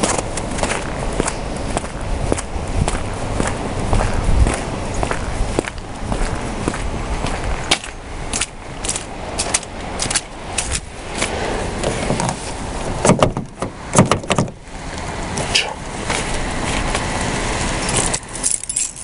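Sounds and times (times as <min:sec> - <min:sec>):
footsteps on slushy pavement: 0:00.0 - 0:13.0, 0:14.9 - 0:18.8
car door handle clacking: 0:13.0 - 0:14.6.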